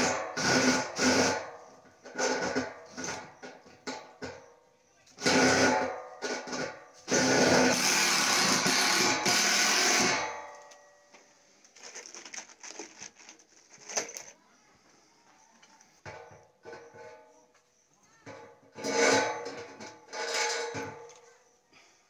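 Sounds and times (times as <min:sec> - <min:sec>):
handheld power tool running: 0:07.1 - 0:10.2
faint knocks and scraping: 0:10.6 - 0:21.6.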